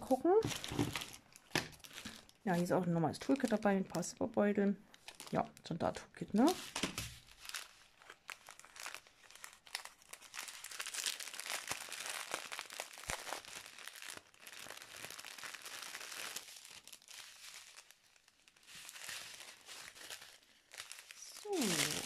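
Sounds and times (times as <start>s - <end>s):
plastic packets crinkling: 0.0s - 22.0s
crackle of small clicks: 4.9s - 5.7s.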